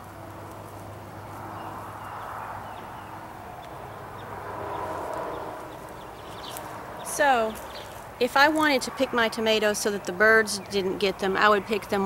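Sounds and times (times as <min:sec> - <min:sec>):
plant leaves rustling: 0:04.6 - 0:10.5.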